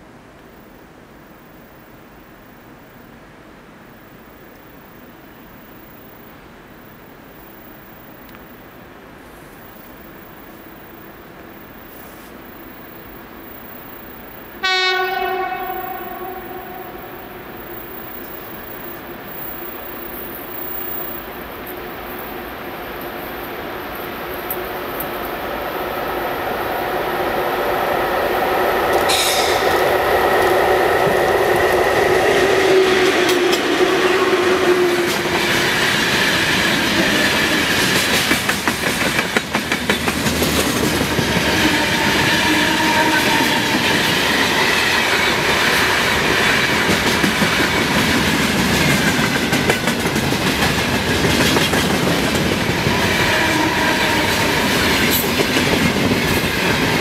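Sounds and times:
train wheels clattering: 0:31.0 - 0:57.0.

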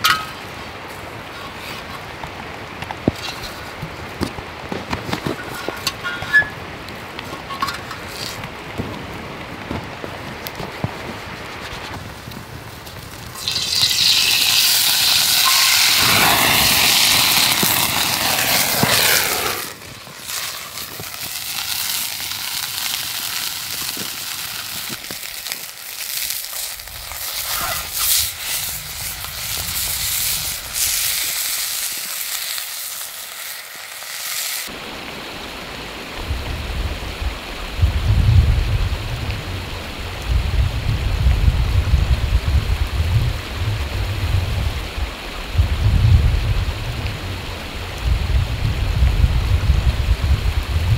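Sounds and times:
low gusting rumble: 0:05.4 - 0:20.2, 0:34.8 - 0:50.9
food frying with spitting pops: 0:11.5 - 0:34.7
oil sizzling in frying pan: 0:13.1 - 0:34.7.

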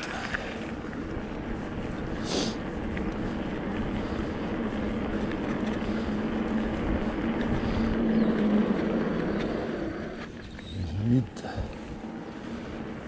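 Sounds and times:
electric bike motor hum: 0:00.0 - 0:13.0.

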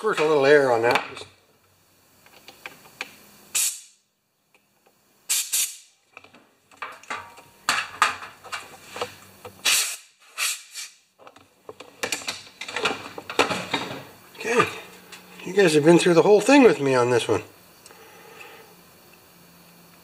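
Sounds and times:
air blow gun hissing bursts: 0:03.5 - 0:03.9, 0:05.3 - 0:05.9, 0:09.6 - 0:11.0.

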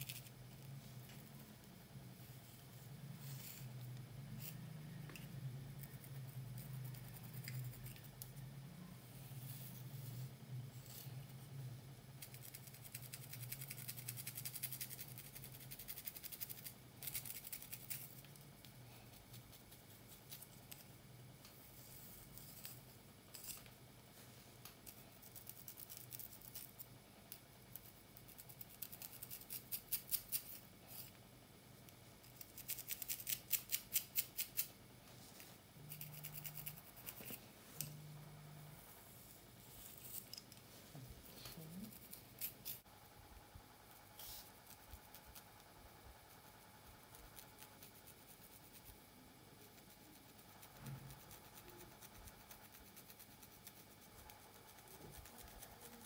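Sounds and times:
wooden pick scratching through hair: 0:32.2 - 0:38.0.

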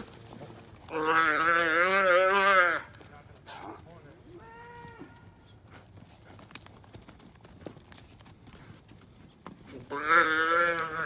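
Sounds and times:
hooves clip-clopping on dirt: 0:00.0 - 0:11.0
calf bawling: 0:09.8 - 0:11.0.

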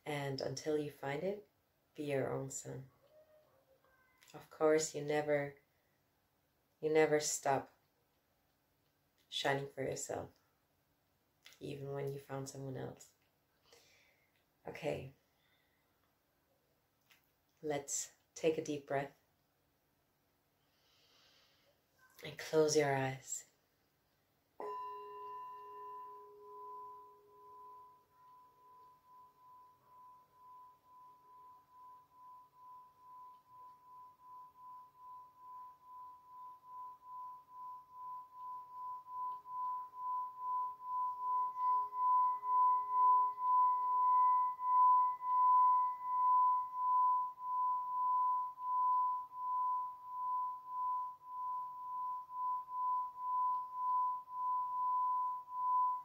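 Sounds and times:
singing bowl rim ringing: 0:24.6 - 0:56.0
singing bowl struck with mallet: 0:24.6 - 0:56.0.

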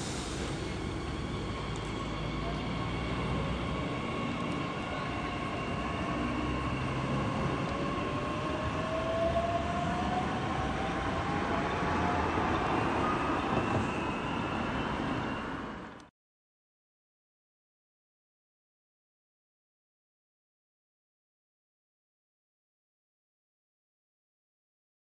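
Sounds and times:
electric train accelerating: 0:00.0 - 0:16.1.

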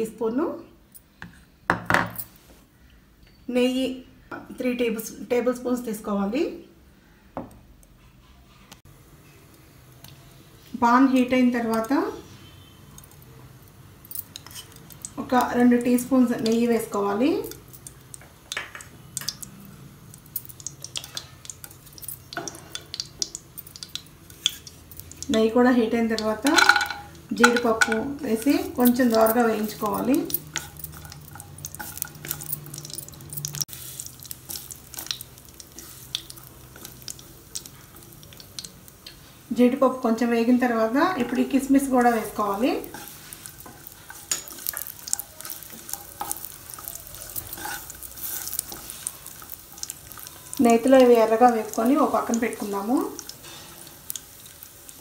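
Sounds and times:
ghee crackling in hot pan: 0:08.8 - 0:55.0
wooden spatula scraping pan: 0:42.1 - 0:49.1.

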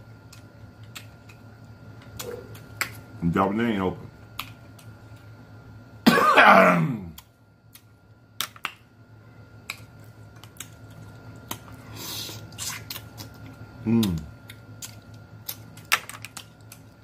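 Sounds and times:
person moaning: 0:06.4 - 0:07.2.

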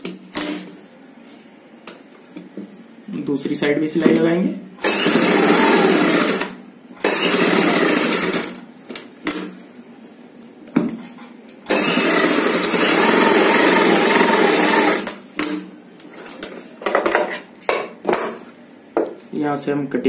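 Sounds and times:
sewing machine stitching: 0:04.8 - 0:08.6, 0:11.7 - 0:15.2.

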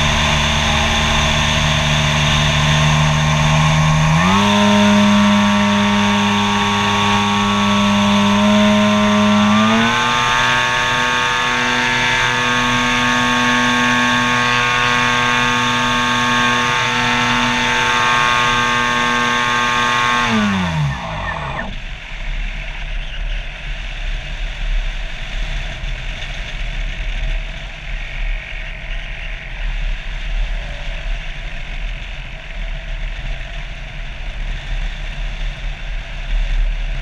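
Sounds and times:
model airplane motor whine: 0:00.0 - 0:21.9.

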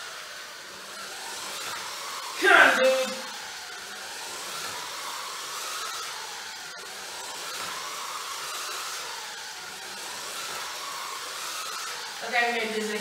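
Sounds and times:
slot car motor whine: 0:00.0 - 0:13.0.

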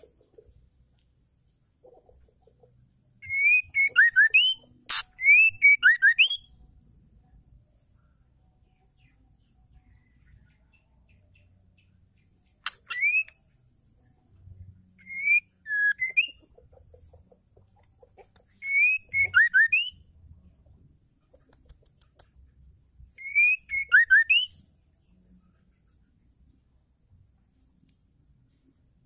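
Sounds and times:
bird singing whistled notes: 0:03.2 - 0:06.6, 0:12.6 - 0:13.4, 0:14.9 - 0:16.4, 0:18.6 - 0:20.1, 0:23.1 - 0:24.7.

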